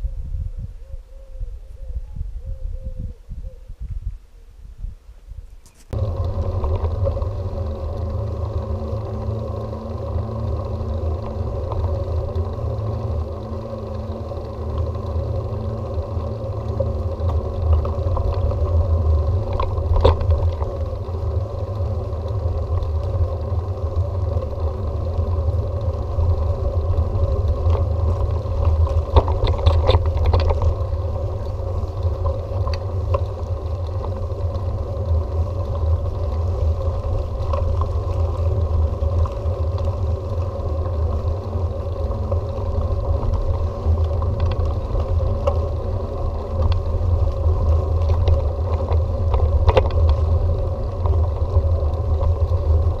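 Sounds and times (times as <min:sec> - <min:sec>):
bicycle rumbling along road: 0:00.0 - 0:53.0.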